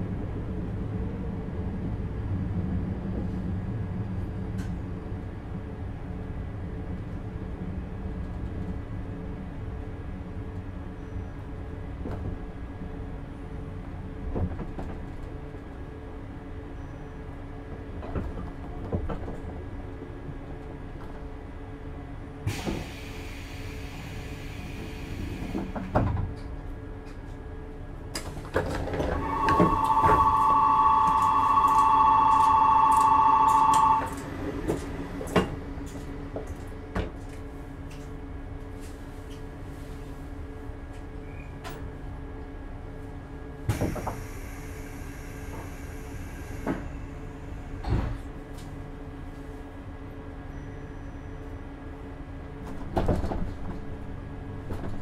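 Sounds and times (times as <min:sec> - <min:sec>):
train equipment humming: 0:00.0 - 0:55.0
train doors closing with knocks: 0:14.2 - 0:15.3, 0:17.7 - 0:19.7, 0:22.4 - 0:26.6, 0:28.1 - 0:37.3, 0:43.6 - 0:44.6, 0:46.4 - 0:48.8, 0:52.6 - 0:55.0
two-tone door buzzer: 0:29.2 - 0:34.2.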